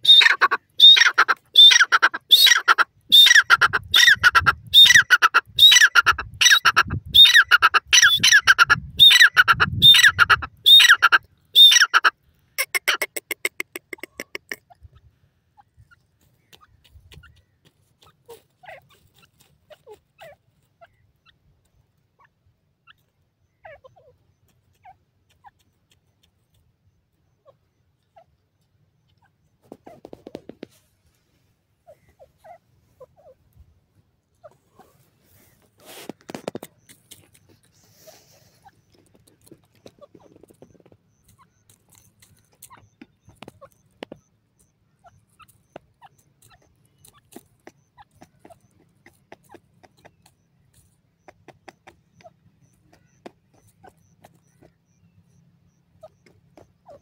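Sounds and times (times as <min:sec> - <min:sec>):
bird harsh repeated call: 0:00.0 - 0:14.8, 0:51.2 - 0:57.0.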